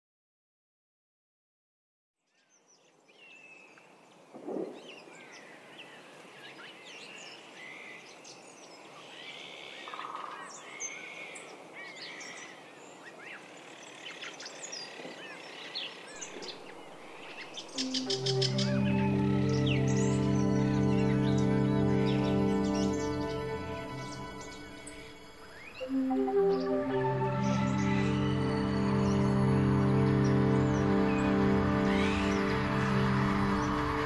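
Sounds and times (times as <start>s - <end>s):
steady outdoor noise: 2.9s - 34.0s
birds chirping and calling: 9.1s - 34.0s.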